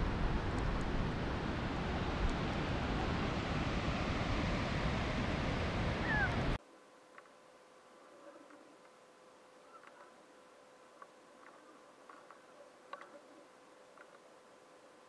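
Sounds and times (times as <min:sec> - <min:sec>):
wind rumbling on microphone: 0:00.0 - 0:06.6.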